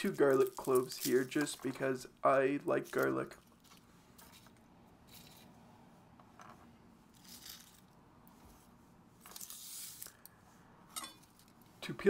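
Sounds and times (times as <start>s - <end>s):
garlic skins crackling: 0.0s - 4.5s.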